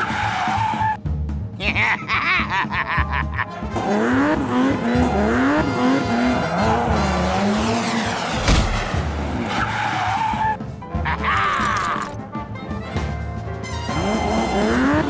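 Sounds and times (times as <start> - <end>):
tyres skidding: 0.0 - 1.0, 3.3 - 12.2
cartoon racing car engine revving: 3.3 - 10.6, 13.9 - 15.0
sharp thump: 8.4 - 9.2.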